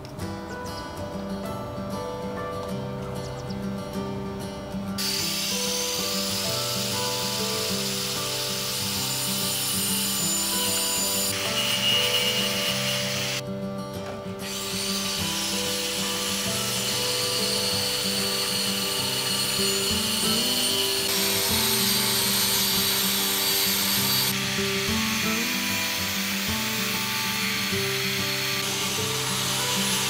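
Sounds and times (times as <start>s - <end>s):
background music: 0.0s - 30.0s
angle grinder cutting and grinding: 5.0s - 13.4s, 14.4s - 30.0s.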